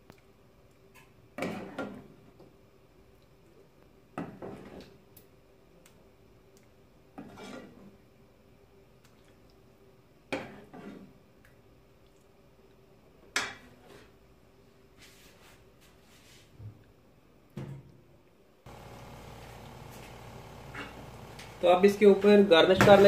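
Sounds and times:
soft wet scrape: 0:07.2 - 0:08.0, 0:10.4 - 0:11.1, 0:13.7 - 0:14.2, 0:15.0 - 0:16.5.

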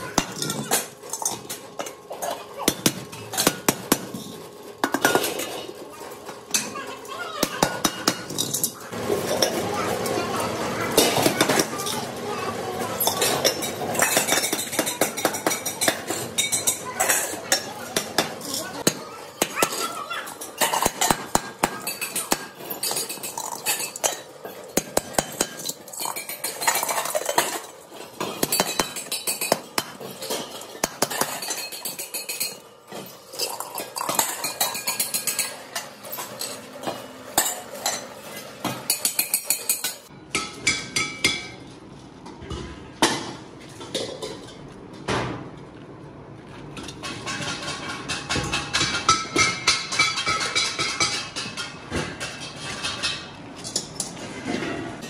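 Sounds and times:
metal cylinder halves clanking: 0:13.0 - 0:41.6.

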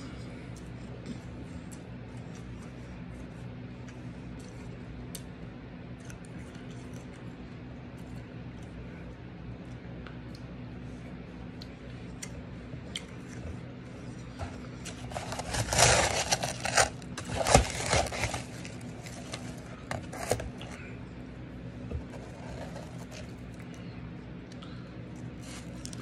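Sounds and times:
shaved ice crunching: 0:14.8 - 0:20.7, 0:22.1 - 0:23.3, 0:25.4 - 0:26.0.

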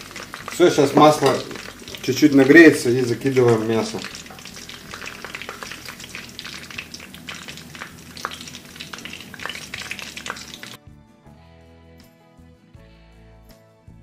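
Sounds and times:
frying oil sizzling: 0:00.0 - 0:10.8
sharp crackling pops: 0:00.0 - 0:10.8.

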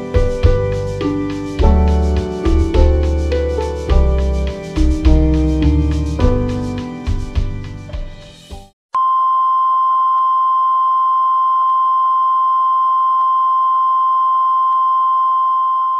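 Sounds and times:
keyboard music: 0:00.0 - 0:08.7
steady test tone beep: 0:09.0 - 0:15.9.

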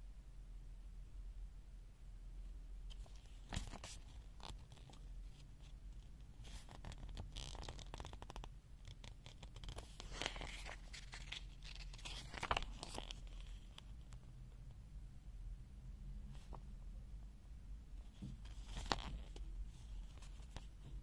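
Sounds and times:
scratching and rustling: 0:02.9 - 0:14.0, 0:18.0 - 0:21.0.

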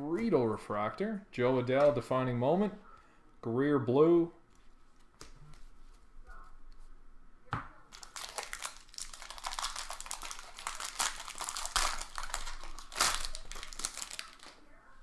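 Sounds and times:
foil wrapper tearing and crinkling: 0:07.9 - 0:14.6.

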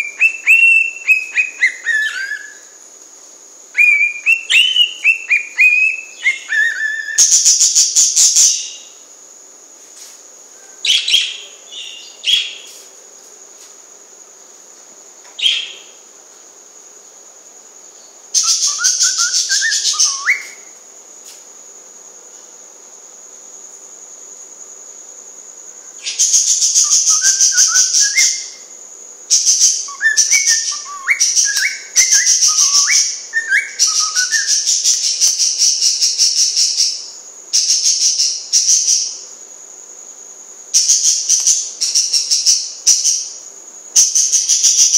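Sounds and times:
cockatiel whistling tune: 0:18.4 - 0:20.6.

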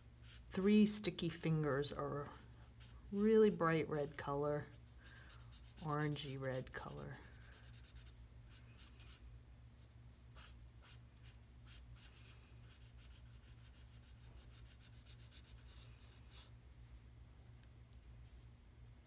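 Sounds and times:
low steady hum: 0:00.0 - 0:19.0
marker strokes on paper: 0:02.6 - 0:09.2, 0:09.8 - 0:16.6.

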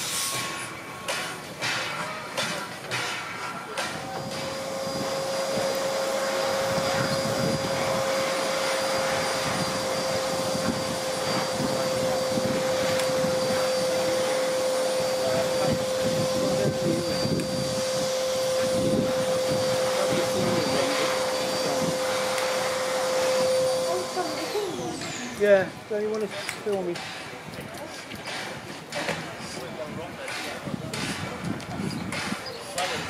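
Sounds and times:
steam hissing: 0:00.0 - 0:33.0
steady high tone: 0:03.6 - 0:25.4.

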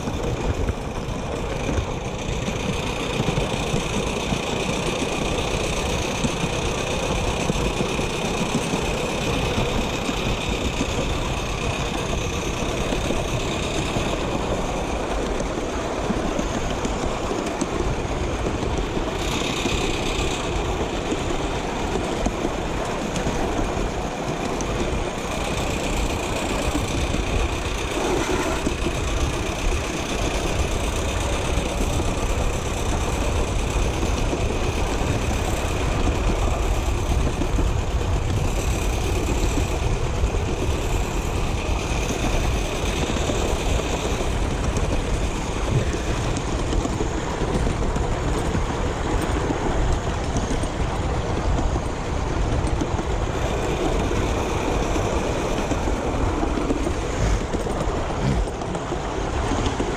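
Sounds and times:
miniature steam train rumbling: 0:00.0 - 0:59.9.

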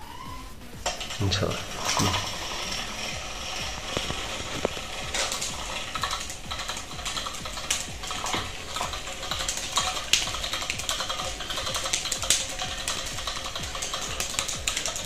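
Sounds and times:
toy motor rattling and clicking: 0:00.0 - 0:15.0.

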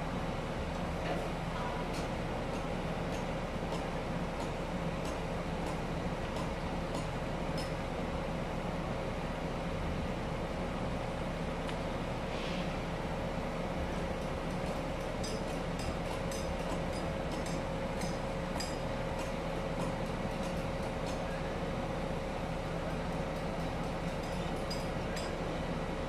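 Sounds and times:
industrial machinery drone: 0:00.0 - 0:26.0
metallic clinks and taps: 0:23.4 - 0:25.4.

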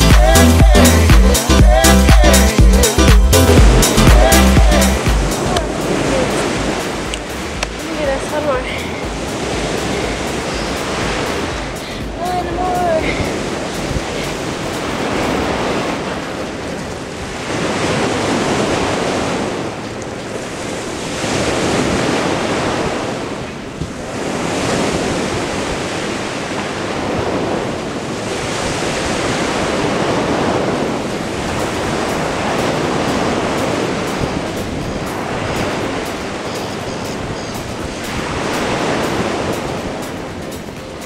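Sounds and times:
waves washing onto shore: 0:00.0 - 0:41.0
wind rumbling on microphone: 0:03.4 - 0:41.0.

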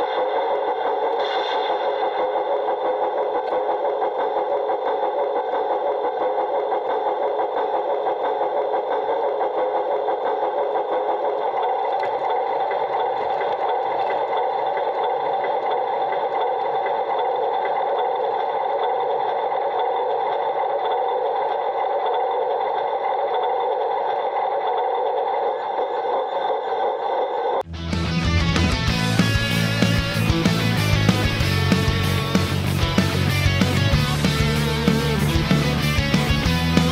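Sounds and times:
model locomotive motor whirring: 0:00.0 - 0:27.7.

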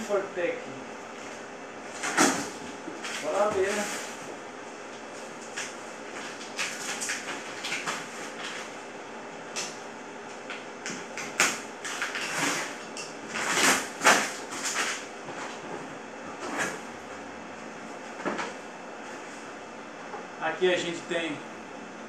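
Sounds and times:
packing tape tearing: 0:01.9 - 0:04.2, 0:05.5 - 0:08.7, 0:10.9 - 0:15.0
cardboard flaps scraping: 0:11.9 - 0:15.8.

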